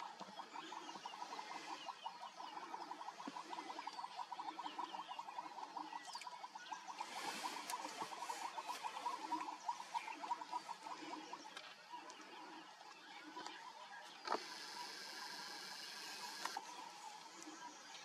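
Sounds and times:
frogs calling in chorus: 0.0 - 11.7.

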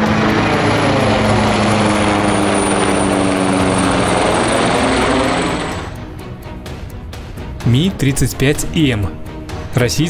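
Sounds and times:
helicopter flying overhead: 0.0 - 7.6.

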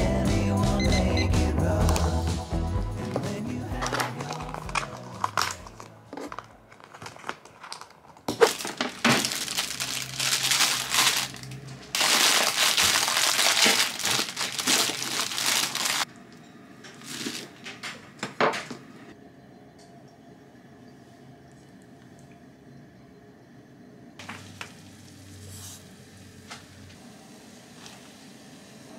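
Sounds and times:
packaging crinkling: 3.8 - 16.1, 17.0 - 17.6.

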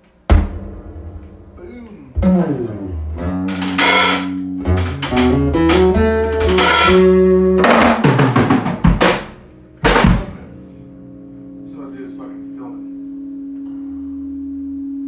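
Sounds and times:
drum kit hits and crashes: 0.2 - 10.5
electric guitar playing: 0.6 - 15.0.

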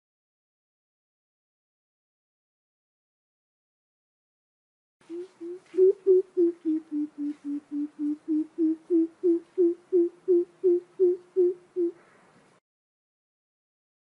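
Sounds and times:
bird deep hooting calls: 5.1 - 12.2.

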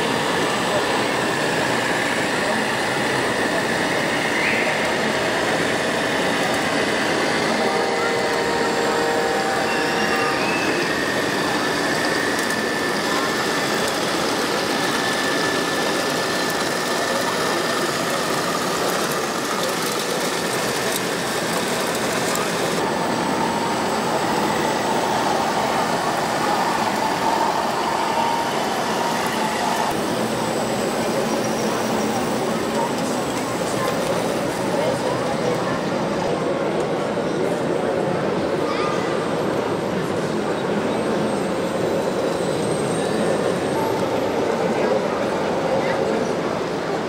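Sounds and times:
busy hall hubbub: 0.0 - 47.0
radio-controlled models running: 10.6 - 22.8.

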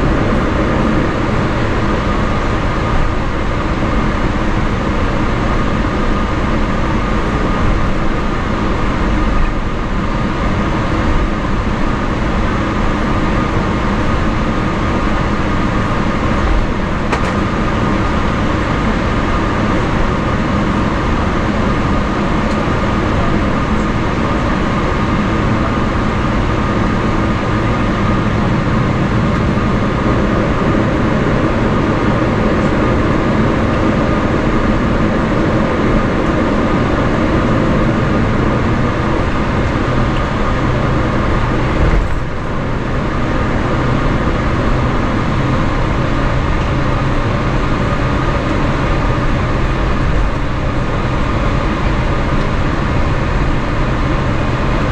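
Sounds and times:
airplane cabin rumble and hiss: 0.0 - 54.9
high jet engine tone: 0.0 - 54.9.

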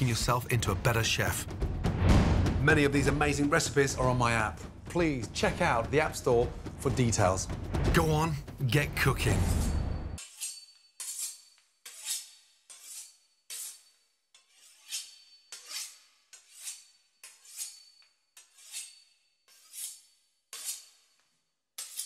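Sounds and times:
knife sawing through pastry crust: 10.2 - 21.2.

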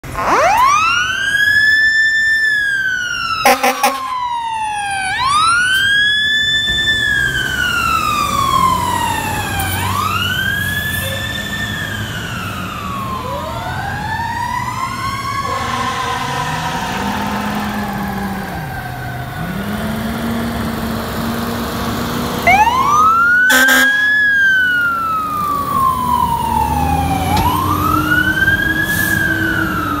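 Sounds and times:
diesel engines pulling away: 0.0 - 30.0
fire truck sirens wailing: 0.0 - 30.0
loud horn blasts: 3.4 - 4.1, 15.4 - 17.8, 23.5 - 24.2.

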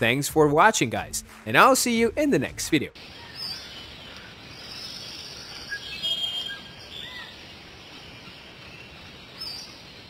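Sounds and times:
steady outdoor hiss: 0.0 - 10.0
birds chirping: 3.0 - 10.0.

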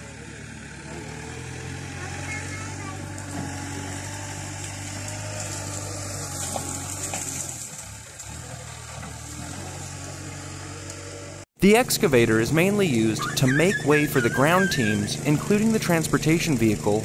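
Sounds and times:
diesel engine humming: 0.0 - 17.0.

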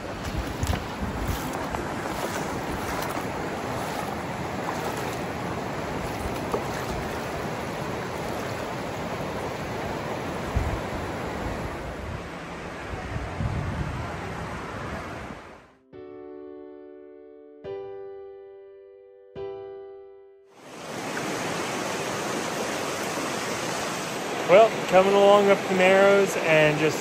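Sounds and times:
river flowing over rocks: 0.0 - 12.7, 20.6 - 27.0.

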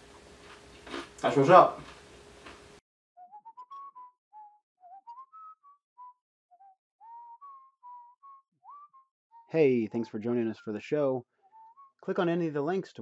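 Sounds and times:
person whistling a jaunty tune: 3.2 - 12.0.

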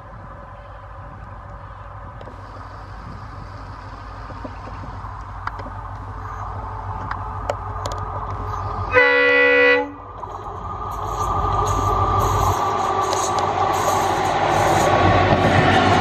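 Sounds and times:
diesel locomotive engine rumble: 0.0 - 16.0
train horn blast: 8.9 - 10.1.

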